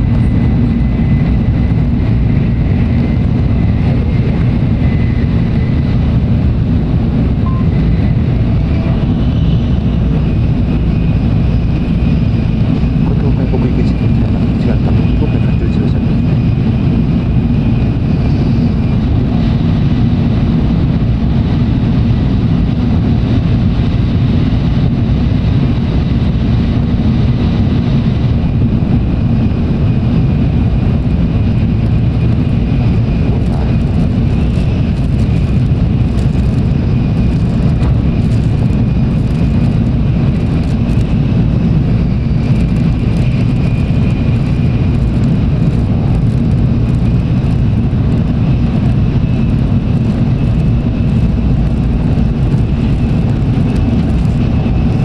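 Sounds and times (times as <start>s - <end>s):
train cabin low rumble: 0.0s - 55.0s
high-pitched steady tone: 7.4s - 9.5s.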